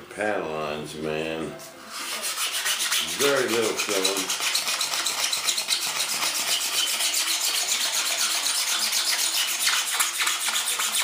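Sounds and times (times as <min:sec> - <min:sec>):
hand sanding strokes: 0:01.8 - 0:11.0.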